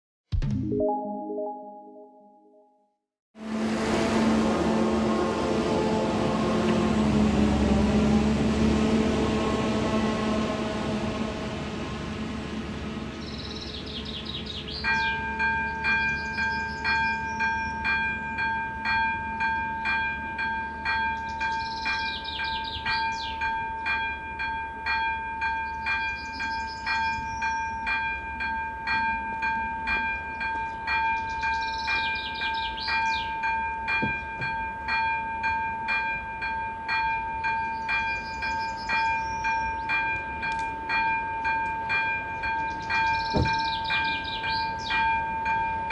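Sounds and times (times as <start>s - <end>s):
bird singing: 13.2s - 18.0s, 20.7s - 24.0s, 25.7s - 27.9s, 30.0s - 33.4s, 37.6s - 40.2s, 42.3s - 45.1s
level crossing warning bell: 14.8s - 45.9s.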